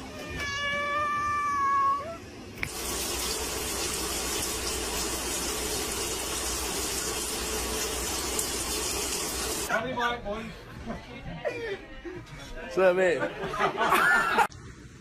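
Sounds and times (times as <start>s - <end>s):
cat meowing: 0.0s - 2.2s
running water from a tap: 2.6s - 9.7s.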